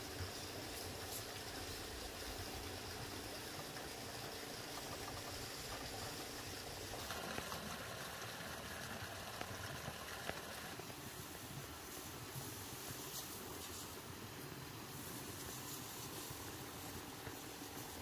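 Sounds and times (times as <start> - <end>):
spray hissing from wand: 14.8 - 18.0.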